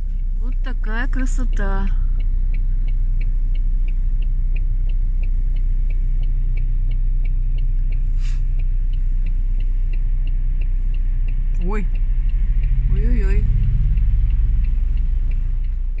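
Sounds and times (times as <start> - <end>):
car engine and road rumble: 0.0 - 16.0
regular light ticking: 0.0 - 16.0
brief hiss: 8.1 - 8.5.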